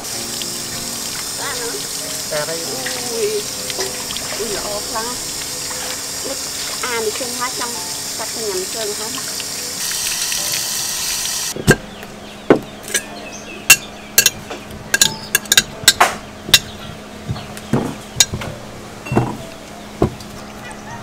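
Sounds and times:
tap water pouring: 0.0s - 11.6s
metal spoon clinking on glass jar: 13.7s - 16.0s.

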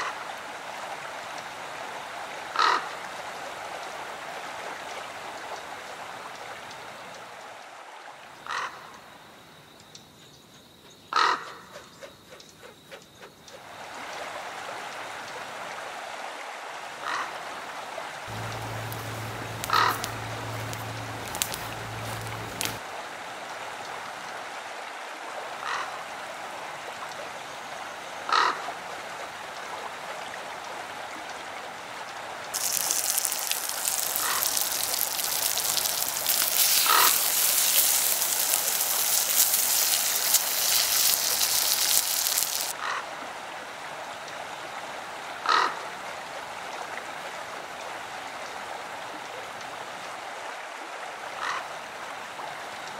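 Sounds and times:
harsh bird calls: 18.3s - 22.8s
sausages sizzling in a frying pan: 18.3s - 22.8s, 32.6s - 42.8s.

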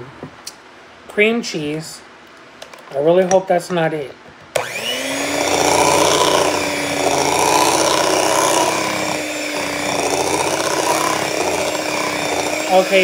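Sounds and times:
electric hand mixer running: 4.6s - 13.0s.

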